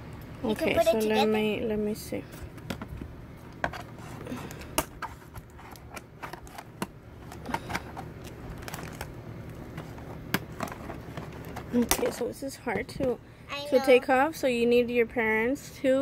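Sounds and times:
plastic and cardboard rustling: 0:03.6 - 0:12.3.

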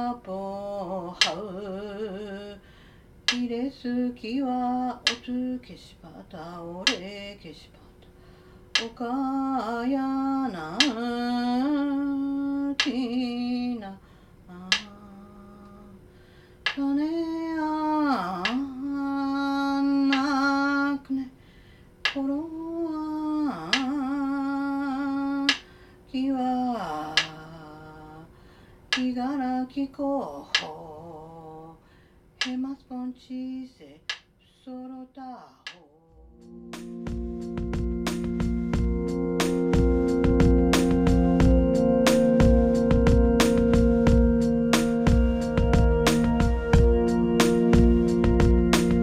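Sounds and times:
woman chanting: 0:00.0 - 0:02.6, 0:03.3 - 0:08.1, 0:08.8 - 0:16.0, 0:16.8 - 0:21.4, 0:22.1 - 0:28.3, 0:29.0 - 0:31.8, 0:32.4 - 0:36.4
wooden stick tapping wooden block: 0:08.8 - 0:09.0.

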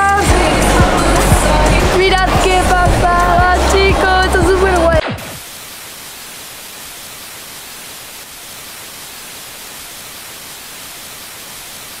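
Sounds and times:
static hiss: 0:05.0 - 0:12.0.

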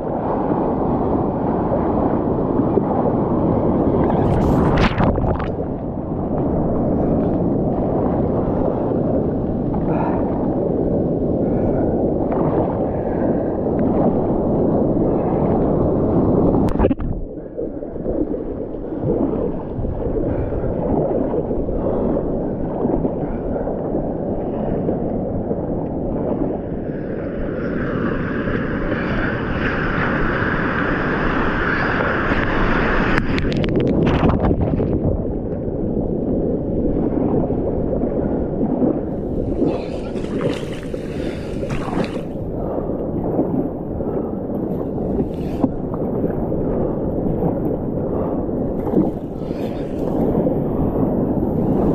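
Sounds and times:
wind rumbling on microphone: 0:00.0 - 0:51.9
whitewater rushing and splashing: 0:39.1 - 0:42.7.

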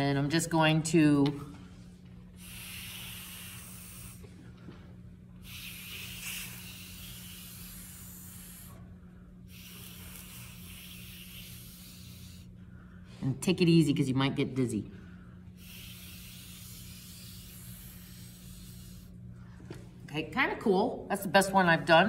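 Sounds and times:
breath blown through a straw: 0:02.4 - 0:04.3, 0:05.4 - 0:08.9, 0:09.5 - 0:12.8, 0:15.6 - 0:19.2.

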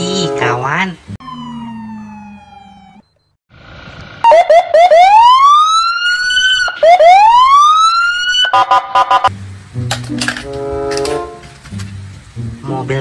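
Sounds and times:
police siren wailing and chirping: 0:01.2 - 0:03.4, 0:04.2 - 0:09.3.

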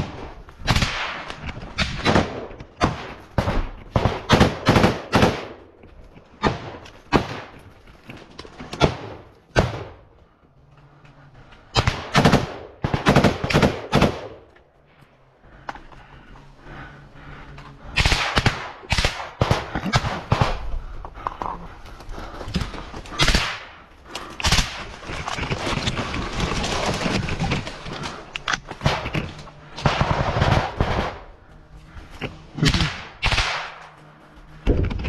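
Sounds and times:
rifle and machine-gun fire: 0:00.0 - 0:05.6, 0:11.7 - 0:14.4, 0:18.0 - 0:20.7, 0:23.2 - 0:23.8, 0:24.4 - 0:25.2, 0:28.8 - 0:31.3, 0:32.6 - 0:33.8.

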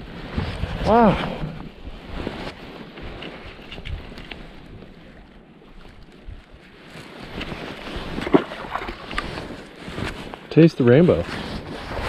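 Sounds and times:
wind on microphone: 0:00.0 - 0:10.4, 0:11.2 - 0:12.0
fish splashing in water: 0:08.1 - 0:09.2.

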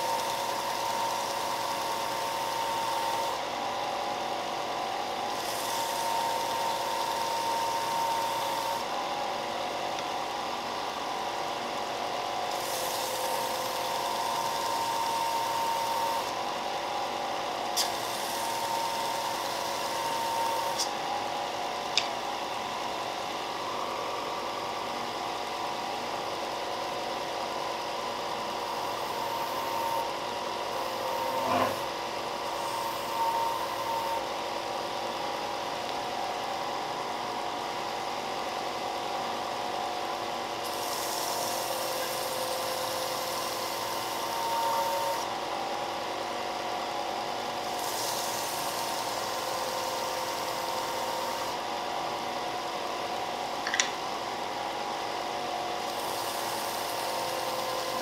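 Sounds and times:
belt sander motor hum: 0:12.4 - 0:16.5, 0:17.8 - 0:21.3, 0:28.6 - 0:34.3, 0:40.7 - 0:45.3, 0:55.8 - 0:58.0.

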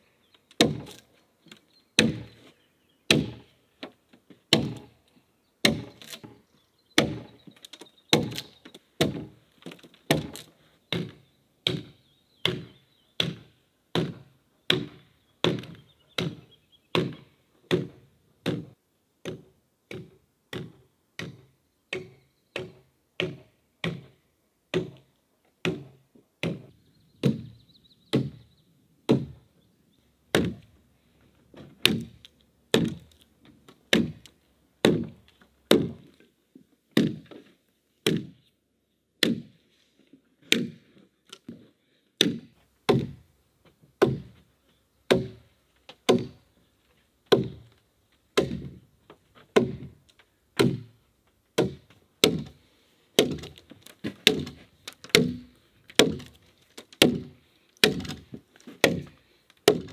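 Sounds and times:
axe chopping log: 0:00.6 - 0:01.1, 0:02.0 - 0:02.4, 0:03.1 - 0:03.5, 0:04.5 - 0:04.9, 0:05.6 - 0:06.4, 0:07.0 - 0:07.5, 0:08.1 - 0:28.5, 0:29.1 - 0:29.5, 0:30.3 - 0:30.7, 0:31.6 - 0:33.2, 0:33.9 - 0:36.2, 0:37.0 - 0:38.4, 0:39.2 - 0:39.6, 0:40.4 - 0:40.9, 0:42.2 - 0:43.2, 0:44.0 - 0:44.4, 0:45.1 - 0:46.4, 0:47.3 - 0:47.7, 0:48.4 - 0:48.8, 0:49.5 - 0:50.0, 0:50.6 - 0:51.0, 0:51.6 - 0:52.6, 0:53.2 - 0:59.9.

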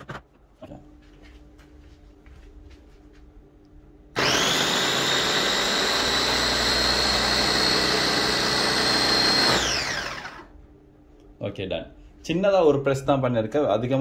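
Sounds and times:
electric food chopper whining: 0:04.2 - 0:10.5.

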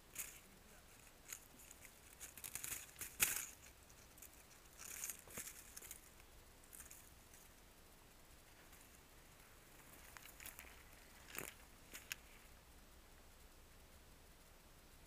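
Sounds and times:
strands rustling against microphone: 0:00.0 - 0:12.6.

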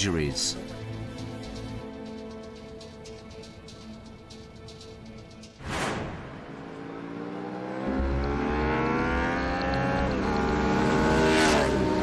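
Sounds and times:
motorcycle passing close: 0:06.3 - 0:12.0
motorcycle engines accelerating: 0:06.4 - 0:12.0.

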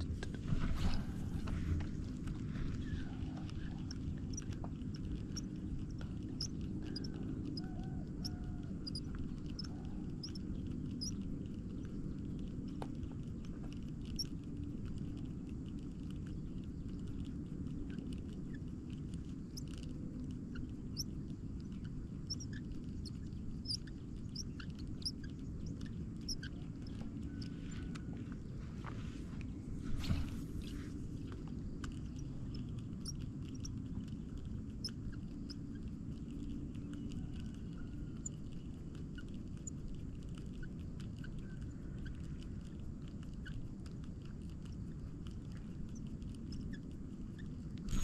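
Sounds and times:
small birds chirping: 0:00.0 - 0:48.0
wind rumble on microphone: 0:00.0 - 0:48.0.

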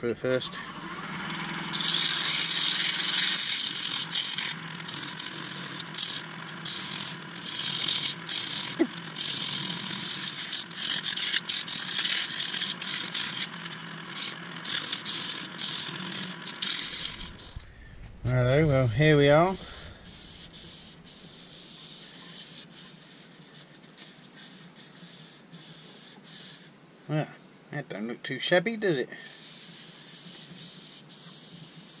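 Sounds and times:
lathe humming: 0:00.2 - 0:22.8
sandpaper sanding hiss: 0:01.7 - 0:17.7, 0:18.3 - 0:26.7, 0:29.2 - 0:32.0.

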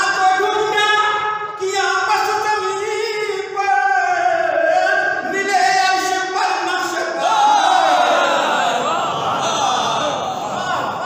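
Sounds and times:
man chanting poetry melodically: 0:00.0 - 0:11.0.

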